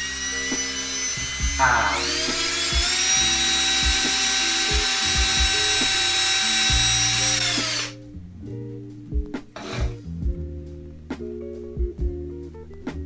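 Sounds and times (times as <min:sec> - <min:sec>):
cordless drill whining: 0:00.0 - 0:08.0
background music with steady beat: 0:00.0 - 0:13.0.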